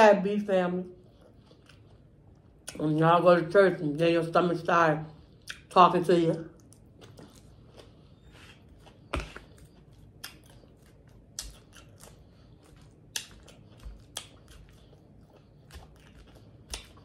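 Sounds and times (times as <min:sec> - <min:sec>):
quiet chewing: 0:00.9 - 0:02.9, 0:06.4 - 0:17.0.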